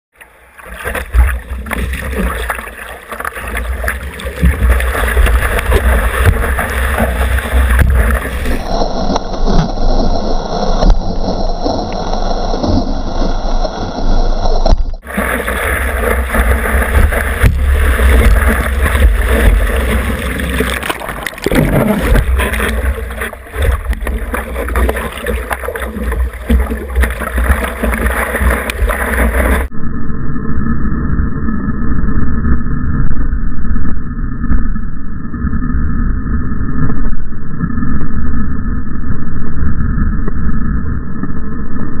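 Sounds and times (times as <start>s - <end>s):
seawater splashing and rushing: 0.2s - 29.7s.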